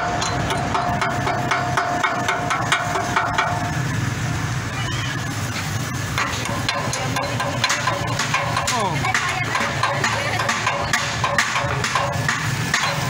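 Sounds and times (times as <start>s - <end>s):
engine idling: 0.0s - 13.0s
tool tapping on metal frame: 6.2s - 13.0s.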